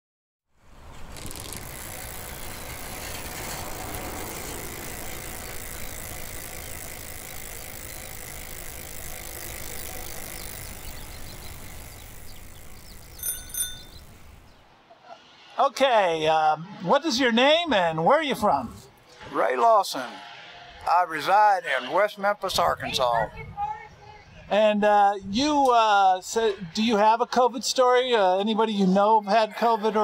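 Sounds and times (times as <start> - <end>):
bicycle chain clicking: 0.8 - 14.5
bicycle bell ringing: 13.0 - 14.4.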